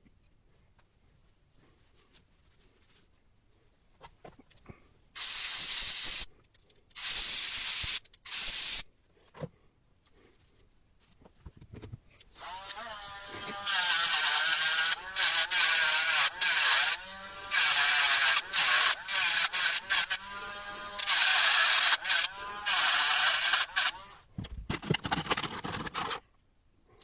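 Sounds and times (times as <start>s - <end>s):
aerosol spray hissing: 5.2s - 6.3s
electric screwdriver whirring: 12.4s - 24.2s.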